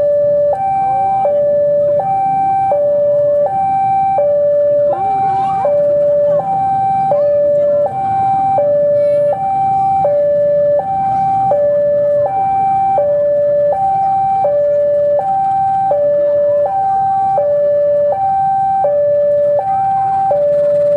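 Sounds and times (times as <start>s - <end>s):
diesel locomotive running: 0.0s - 20.9s
two-tone electronic warning signal: 0.0s - 20.9s.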